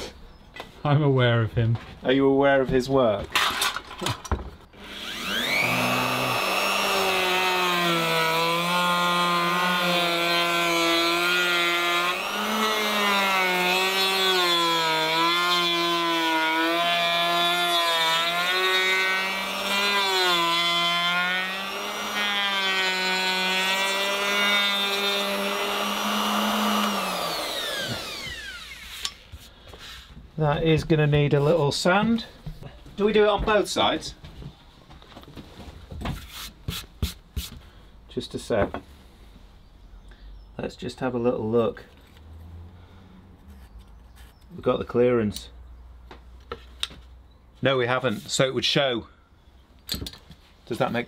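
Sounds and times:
router bit cutting wood: 4.7 - 29.3
plunge router whining: 4.7 - 29.4.

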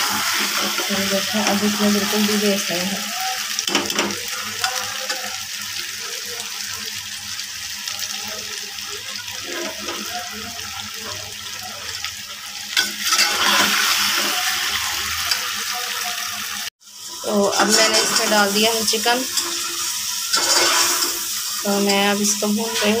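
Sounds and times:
food sizzling in hot oil: 0.0 - 23.0
metal spatula scraping a pot: 9.4 - 10.2, 12.8 - 15.5, 17.3 - 23.0.

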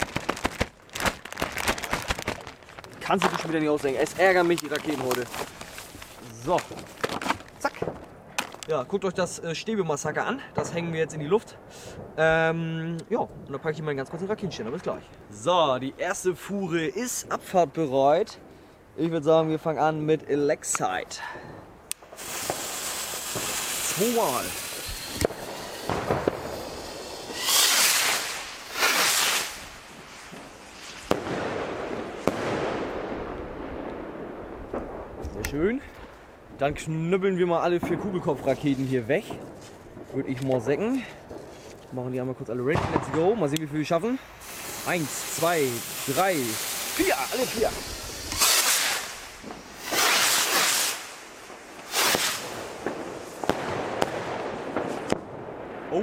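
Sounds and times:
firework rockets hissing: 0.0 - 8.7, 22.0 - 33.2, 44.2 - 55.2
firework bangs: 0.0 - 8.9, 21.4 - 36.3, 42.7 - 56.0.

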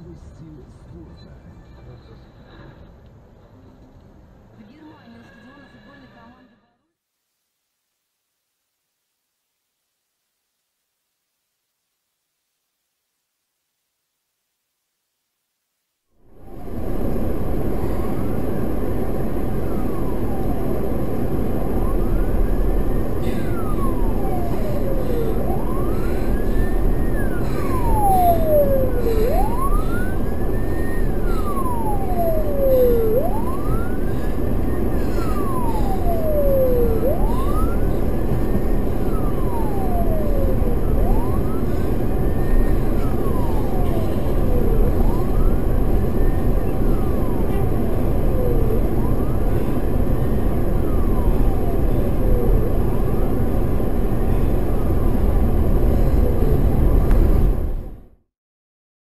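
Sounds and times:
emergency siren wailing: 16.2 - 58.2.

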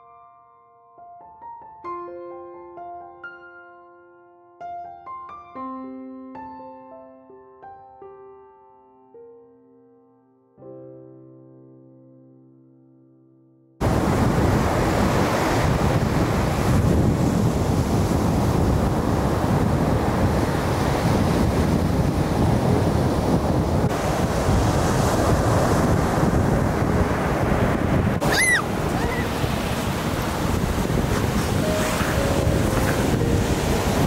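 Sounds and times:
surf breaking on beach: 13.8 - 34.0
wind buffeting microphone: 13.8 - 34.0
brief high call: 28.2 - 29.4.

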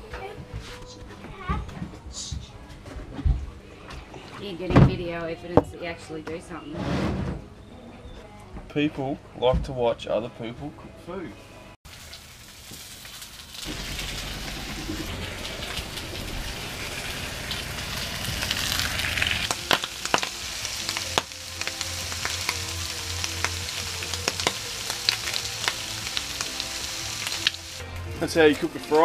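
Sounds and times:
meat sizzling in a frying pan: 11.9 - 27.8.

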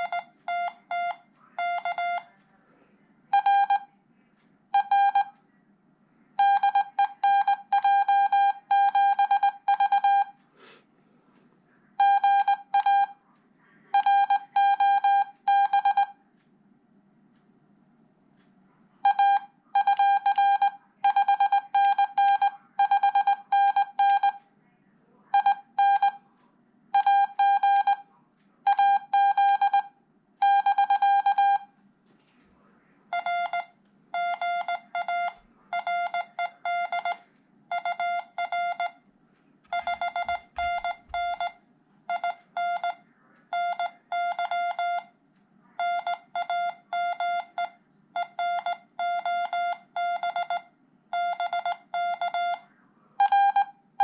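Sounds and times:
high morse code beeps: 0.0 - 2.3, 3.3 - 3.9, 4.8 - 5.4, 6.4 - 10.4, 12.0 - 13.2, 13.9 - 16.2, 19.0 - 24.4, 25.3 - 26.2, 27.0 - 28.1, 28.7 - 31.7, 33.1 - 39.0, 39.7 - 45.2, 45.8 - 53.8
lower quieter morse code tone: 0.0 - 2.4, 3.3 - 3.9, 4.7 - 5.4, 6.4 - 10.4, 11.9 - 13.2, 13.8 - 16.2, 19.0 - 24.4, 25.3 - 26.3, 26.9 - 31.8, 33.1 - 39.1, 39.7 - 45.2, 45.8 - 53.8.

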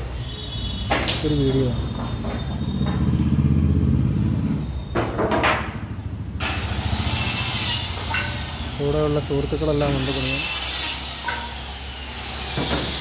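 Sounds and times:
power tool cutting wood: 6.4 - 13.0.

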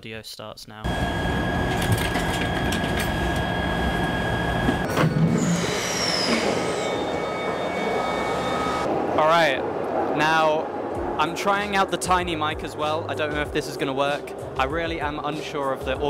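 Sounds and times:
falling train whine: 0.9 - 10.0
subway train rumbling: 0.9 - 11.2
high-pitched train whine: 0.9 - 11.7.

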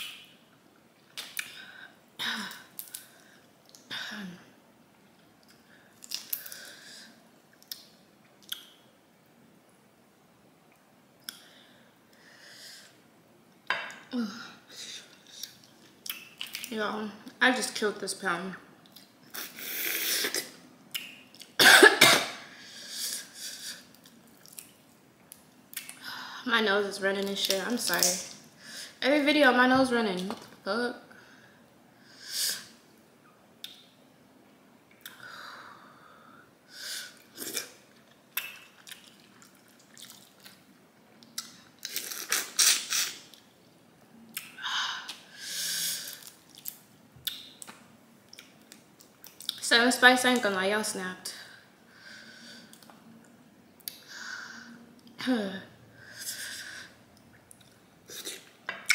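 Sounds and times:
woman coughing loudly: 21.6 - 22.4
chewing: 37.6 - 40.6.

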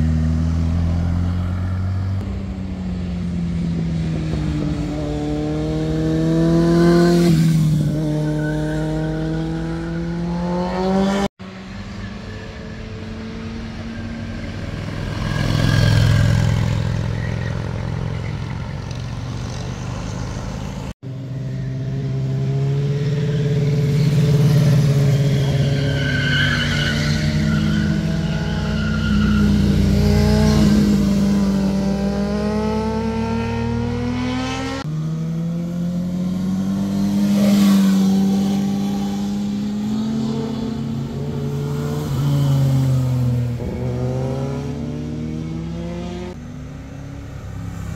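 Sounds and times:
motorcycles passing through bend: 0.0 - 25.9, 26.6 - 47.9.

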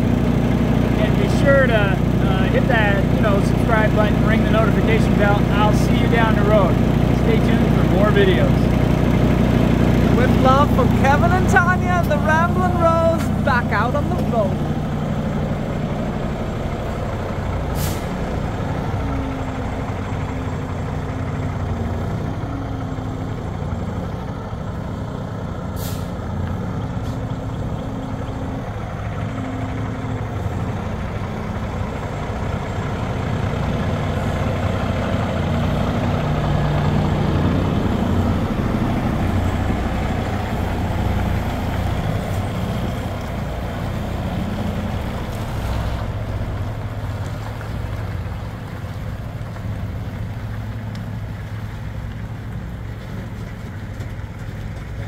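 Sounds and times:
truck diesel engine running: 0.0 - 55.0
air brake hisses: 17.7 - 18.2, 25.8 - 26.2.

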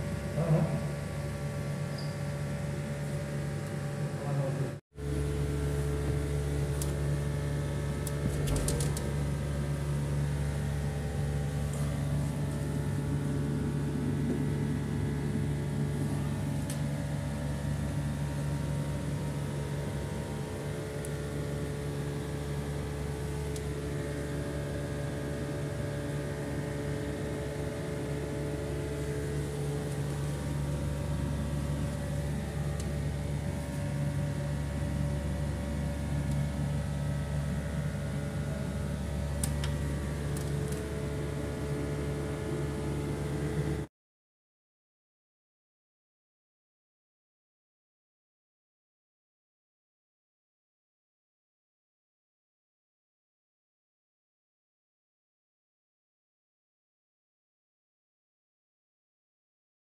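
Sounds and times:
steady electrical hum: 0.0 - 43.9.

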